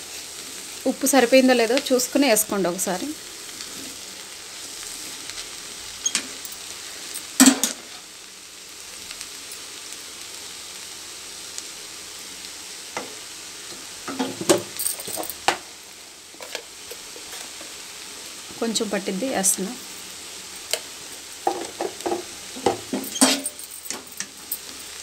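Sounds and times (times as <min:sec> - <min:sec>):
greens frying in oil: 0:00.0 - 0:25.0
spatula scraping and knocking pan: 0:21.4 - 0:24.1.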